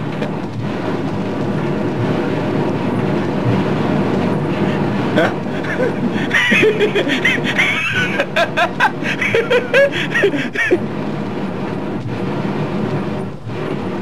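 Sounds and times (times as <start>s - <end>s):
man laughing: 5.2s - 10.9s.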